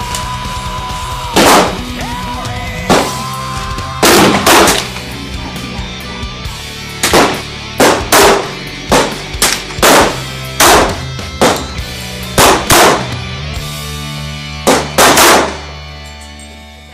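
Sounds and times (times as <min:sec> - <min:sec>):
rock music: 0:00.0 - 0:16.9
gunshots: 0:01.3 - 0:02.0, 0:02.9 - 0:03.2, 0:04.0 - 0:05.0, 0:07.0 - 0:13.2, 0:14.6 - 0:15.8.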